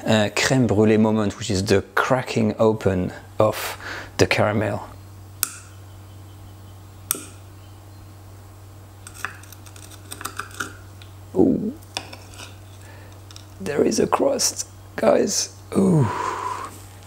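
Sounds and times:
caramel crust cracking: 9.0s - 11.2s, 11.8s - 13.7s.

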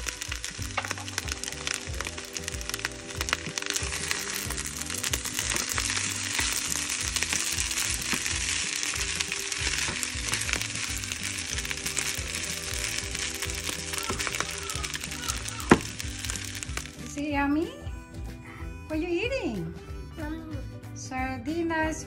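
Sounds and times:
rice sizzling in a skillet: 0.0s - 17.4s.

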